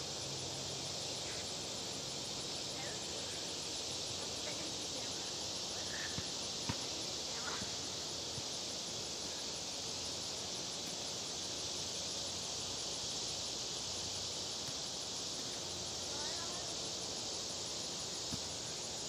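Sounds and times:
insect chorus droning: 0.0 - 19.0.

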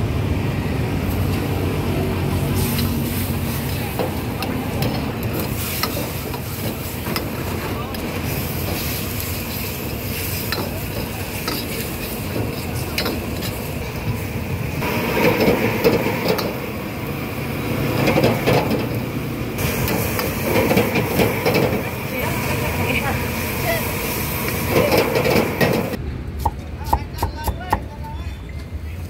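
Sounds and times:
traffic noise: 0.0 - 29.0
background chatter: 1.8 - 14.3.

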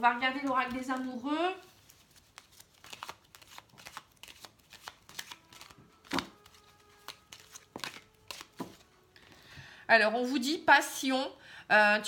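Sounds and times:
cards being shuffled: 0.2 - 9.0.

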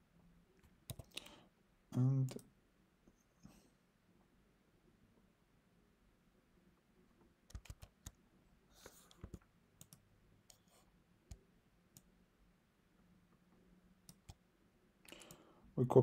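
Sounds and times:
computer mouse clicks: 0.6 - 1.3, 7.5 - 8.2, 8.9 - 12.1, 14.0 - 14.4, 15.1 - 15.4.

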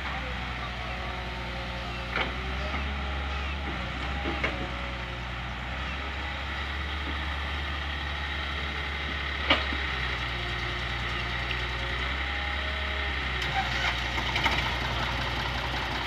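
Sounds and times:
diesel engines running: 0.0 - 16.0.

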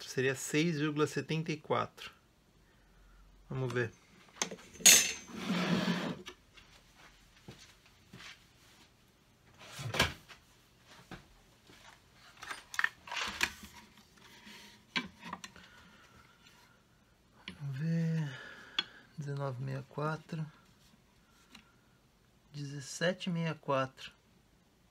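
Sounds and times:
scraping rustle on workbench: 5.2 - 6.3.

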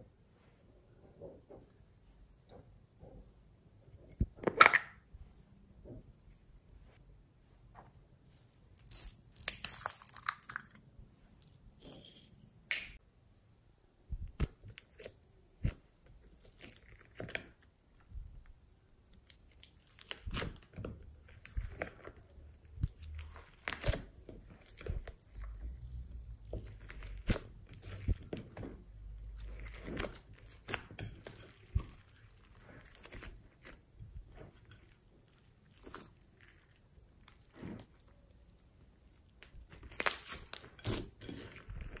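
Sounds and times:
beads crackling and popping: 8.3 - 12.8, 19.2 - 42.0
slime squelching: 14.2 - 42.0.

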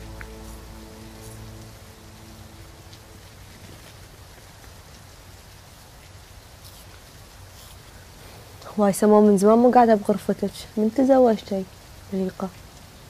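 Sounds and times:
soft music score: 0.0 - 5.3
steady rain hiss: 0.0 - 13.0.

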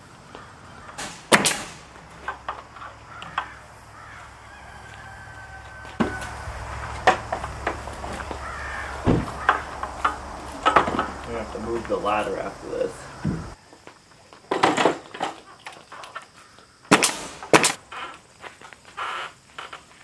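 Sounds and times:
birds calling: 0.0 - 13.7
wood cracking: 6.0 - 12.0
wooden boards knocking: 7.0 - 11.9, 13.2 - 13.6.

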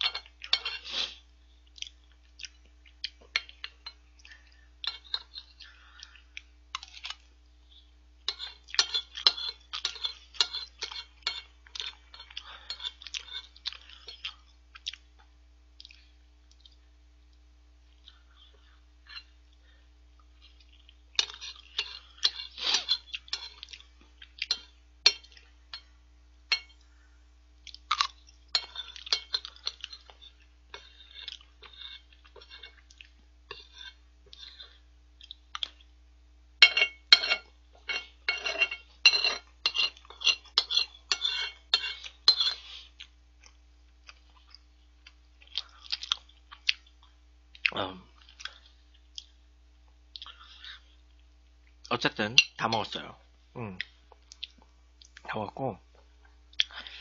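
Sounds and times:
spoon scraping a ceramic plate: 0.0 - 1.2, 8.3 - 14.2, 21.2 - 23.7, 28.5 - 32.9, 33.5 - 34.8, 36.6 - 42.9.

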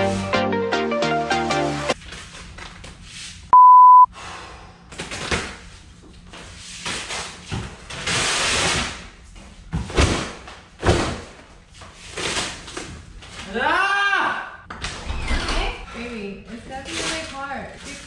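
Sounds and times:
short electronic beep: 3.6 - 4.1.

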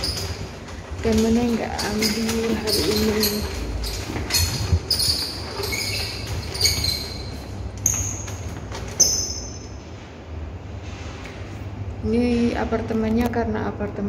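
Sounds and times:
footsteps on tiles: 0.0 - 9.8
handling noises: 0.0 - 10.2.

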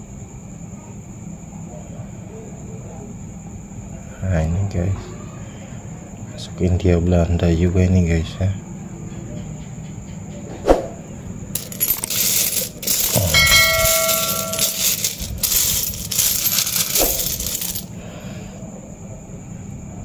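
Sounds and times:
coin ringing: 11.6 - 17.9
coins clinking and sliding: 11.6 - 17.9.

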